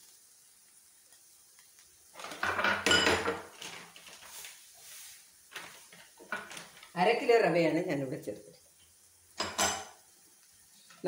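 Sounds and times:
pots and utensils clattering: 2.2s - 4.3s, 5.5s - 6.9s, 9.4s - 10.0s.

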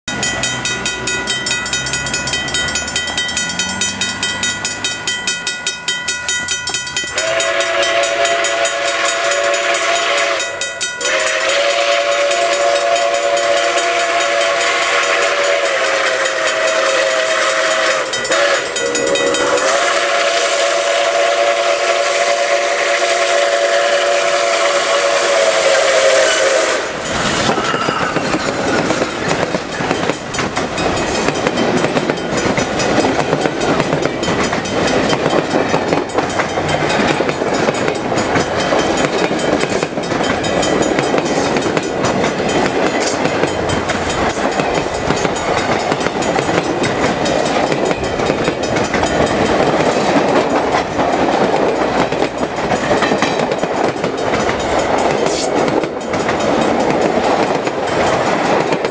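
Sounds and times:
crossing bell ringing: 0.1s - 58.9s
train wheels clattering: 0.1s - 58.9s
steam locomotive whistle: 7.1s - 29.4s
hiss of steam: 19.4s - 28.8s.

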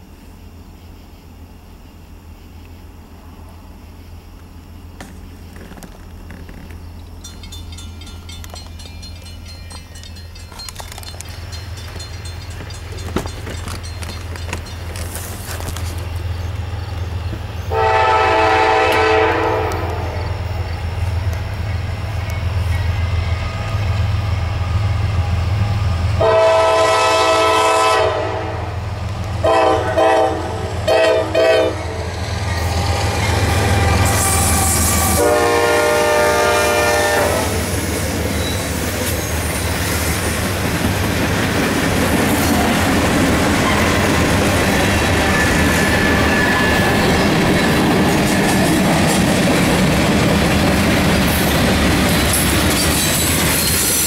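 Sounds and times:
train wheels clickety-clack: 5.0s - 17.5s, 32.0s - 35.5s, 36.7s - 54.0s
train air horn blasts: 17.7s - 20.3s, 26.2s - 28.8s, 29.4s - 32.0s, 32.6s - 37.7s.

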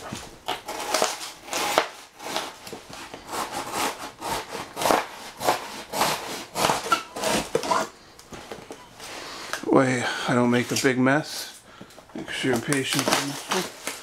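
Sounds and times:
knife sawing through cardboard: 0.6s - 7.9s.

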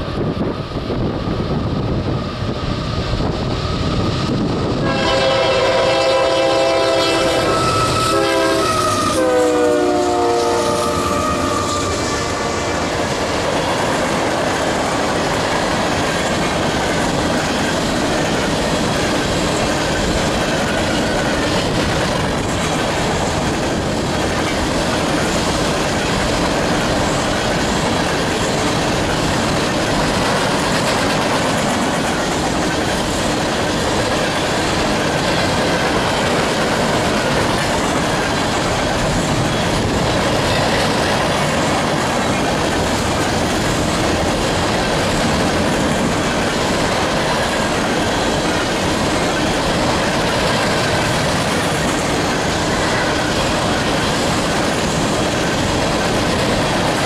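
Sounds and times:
train cars rolling clickety-clack: 0.0s - 57.0s
locomotive horn blast: 4.8s - 12.9s.

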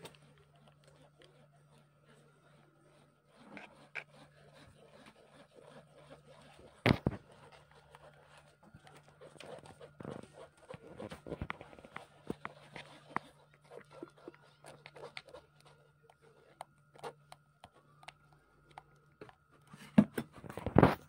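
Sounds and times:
spoon scraping pulp through sieve: 0.0s - 21.0s.

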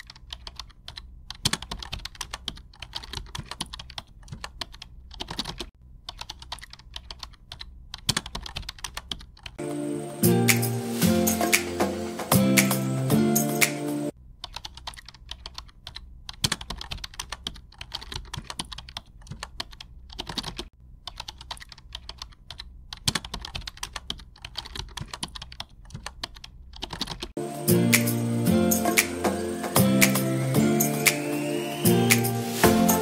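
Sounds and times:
computer keyboard typing: 0.0s - 9.6s, 14.4s - 28.1s
background music: 9.6s - 14.1s, 27.4s - 33.0s.

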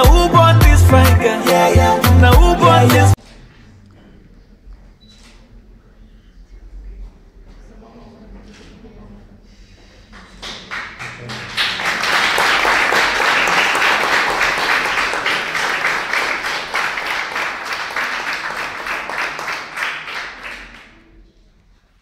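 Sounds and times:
crowd applauding: 10.2s - 21.2s.

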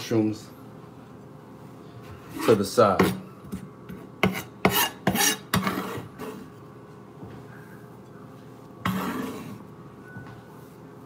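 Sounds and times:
vegetable scraps scraped on counter: 4.2s - 6.5s, 8.8s - 9.7s.

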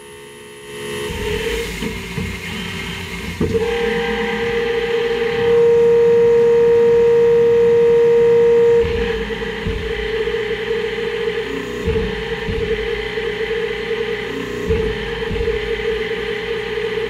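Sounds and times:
higher machine whine: 0.0s - 17.0s
machine spindle whine: 0.0s - 17.0s.

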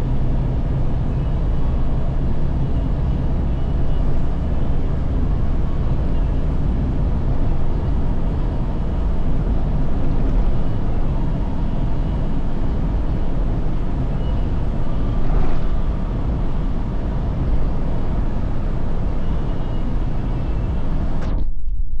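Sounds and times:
road and engine noise in car cabin: 0.0s - 21.5s.

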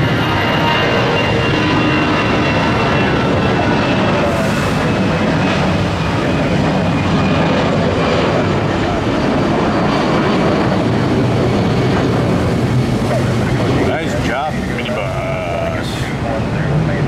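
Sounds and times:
jet engines roaring at takeoff: 0.0s - 17.0s.

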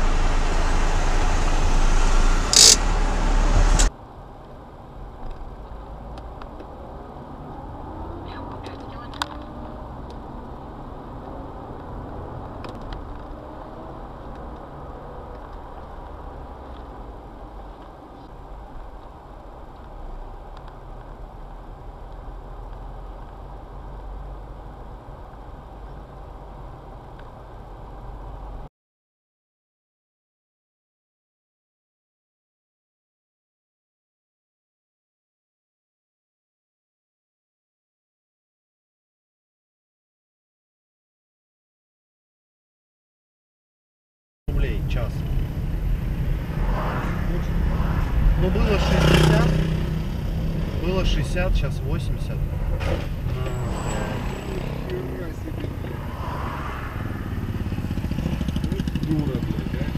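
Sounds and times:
road noise inside car: 0.0s - 28.7s, 44.5s - 59.9s
street traffic rumble: 0.0s - 28.7s, 44.5s - 59.9s.

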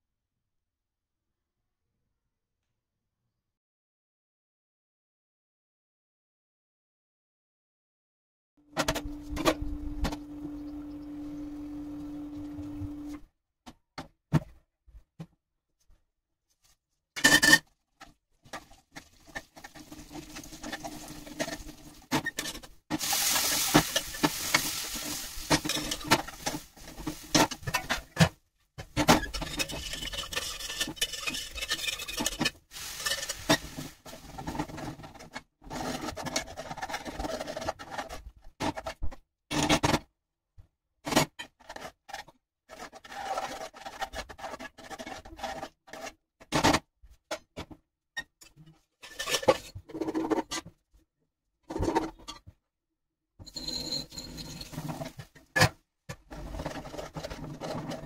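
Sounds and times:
spoon scraping a frying pan: 19.2s - 28.2s, 29.0s - 34.6s
spices sizzling in oil: 23.0s - 27.8s, 32.7s - 34.2s.

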